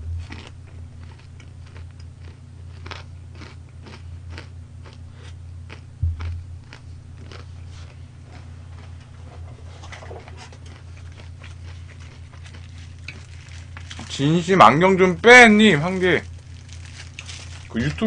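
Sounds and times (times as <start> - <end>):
loud low thump: 0.0 - 0.4, 6.0 - 6.6
steady low hum: 0.0 - 18.0
chewing crispy food crunches: 0.2 - 8.5, 10.3 - 18.0.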